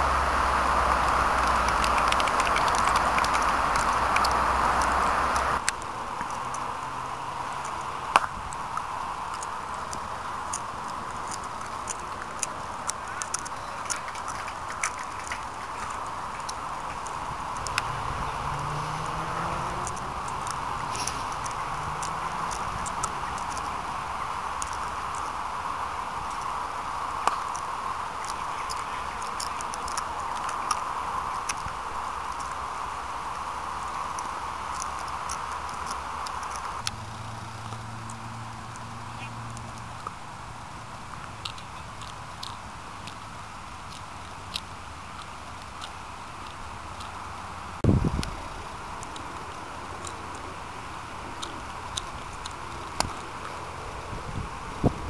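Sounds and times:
outdoor hiss: 0:00.0 - 0:55.0
faint ticks: 0:26.2 - 0:32.6.

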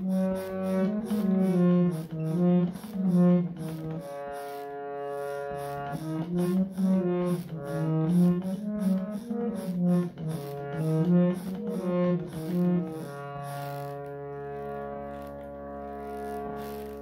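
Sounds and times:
light percussion beat: 0:00.0 - 0:13.8
instrumental melody: 0:00.0 - 0:17.0.

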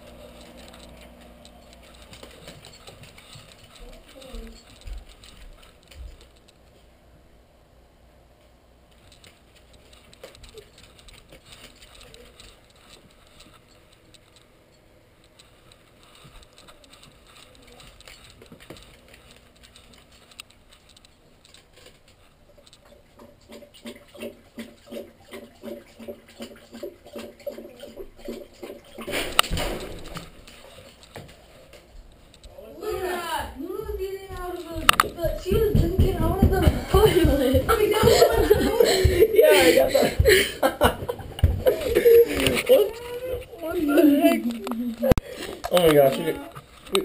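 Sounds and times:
faint clicks and shuffling: 0:00.0 - 0:07.0, 0:08.4 - 0:24.0, 0:27.4 - 0:47.0
dog lapping water: 0:22.8 - 0:29.4.

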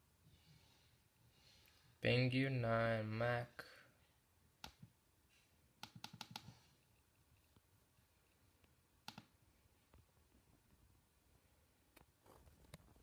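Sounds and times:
laptop clicks: 0:05.8 - 0:06.6.

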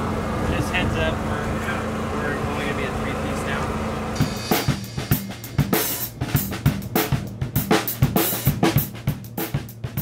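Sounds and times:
drum kit beat: 0:04.2 - 0:10.0.

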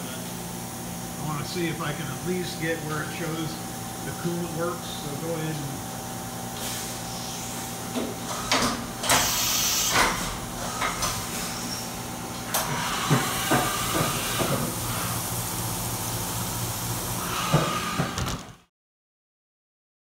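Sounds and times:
machine hum: 0:00.0 - 0:18.7
coolant spray hissing: 0:09.2 - 0:10.0.

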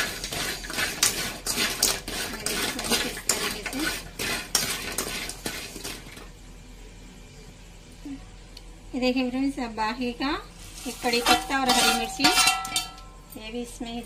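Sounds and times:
utensil scraping and knocking pan: 0:00.0 - 0:06.2, 0:10.8 - 0:13.1.

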